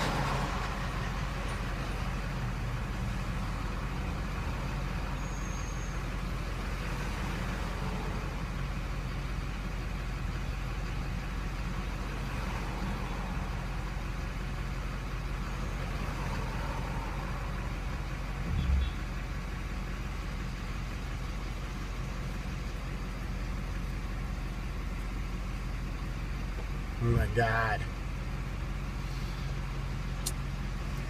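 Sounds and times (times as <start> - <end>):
diesel truck engine idling: 0.0 - 31.0
brief low thump: 18.4 - 19.1.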